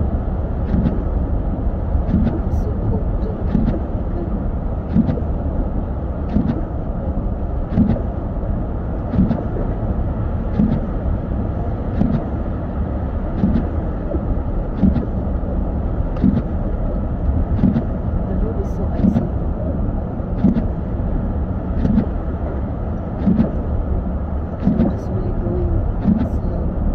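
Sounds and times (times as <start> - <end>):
road and engine rumble: 0.0 - 26.9
windshield wipers thudding and clicking: 0.6 - 1.2, 2.1 - 5.5, 6.3 - 8.2, 9.0 - 11.2, 11.8 - 12.6, 13.2 - 15.6, 16.2 - 19.4, 20.3 - 21.0, 21.6 - 25.2, 25.8 - 26.4.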